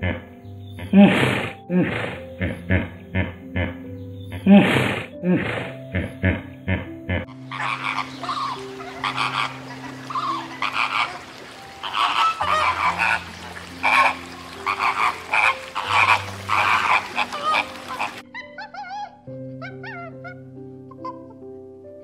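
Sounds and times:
flamingos honking: 7.2 - 20.4.

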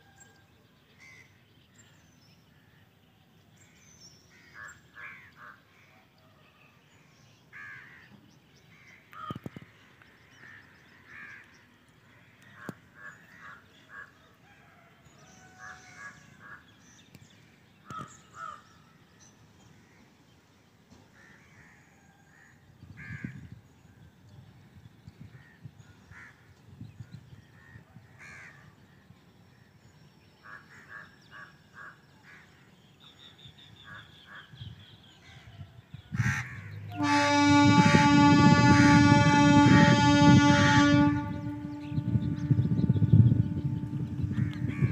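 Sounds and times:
crows cawing: 7.5 - 8.1, 17.8 - 18.6, 36.2 - 36.7.

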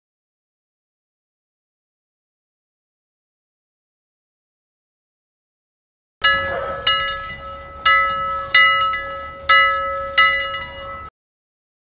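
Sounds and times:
timer alarm bell ringing: 6.2 - 11.1.

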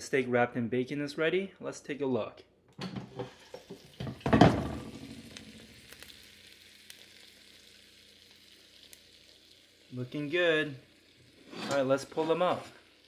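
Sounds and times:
meat sizzling faintly: 3.1 - 13.0.

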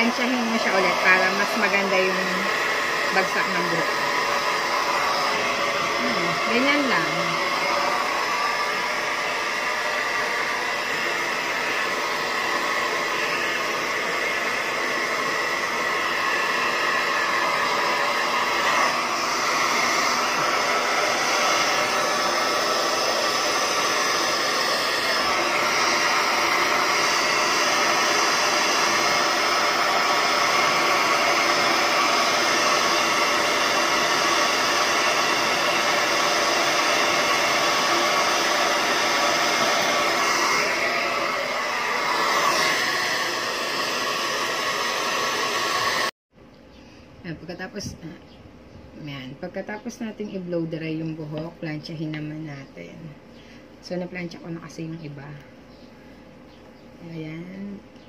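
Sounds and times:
hair dryer blowing: 0.0 - 46.2.

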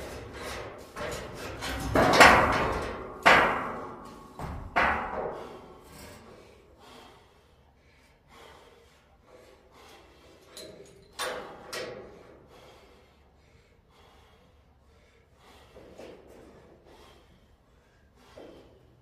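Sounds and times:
metal racking clanging: 0.0 - 6.3, 10.5 - 12.2.

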